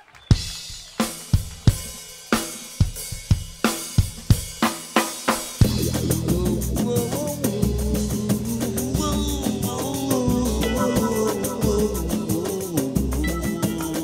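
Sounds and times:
band playing instrumental: 0.3s - 14.0s.

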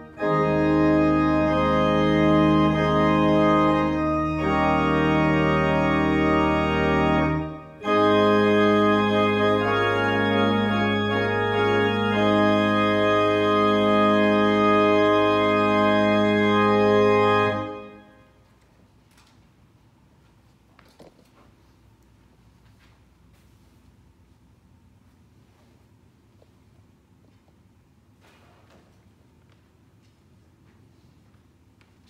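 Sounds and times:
church organ chords: 0.0s - 18.4s.

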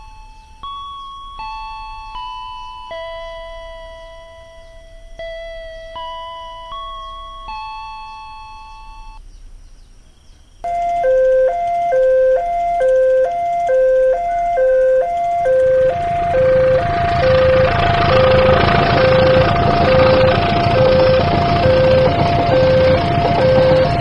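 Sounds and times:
level-crossing alarm tones: 10.6s - 24.0s
passing train rumble: 10.7s - 24.0s.

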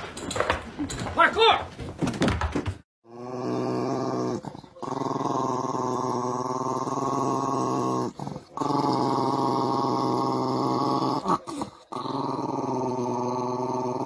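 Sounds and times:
small dog growling: 3.1s - 14.0s.

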